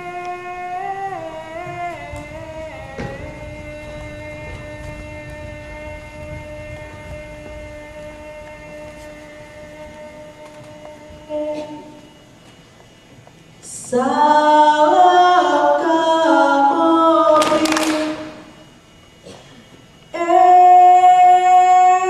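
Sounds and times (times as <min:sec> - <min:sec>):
group singing held chords: 0:00.0 - 0:12.3.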